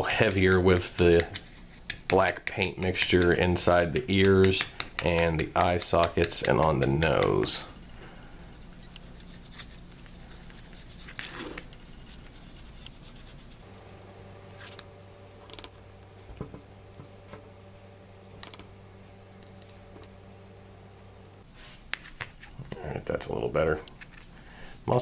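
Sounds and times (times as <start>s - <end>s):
steady low hum: 5.0s - 21.5s
paintbrush scratching on plastic: 8.7s - 21.4s.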